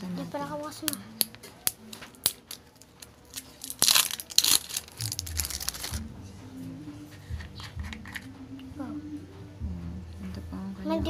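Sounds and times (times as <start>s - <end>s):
plastic crinkling rustle: 2.1s - 6.0s.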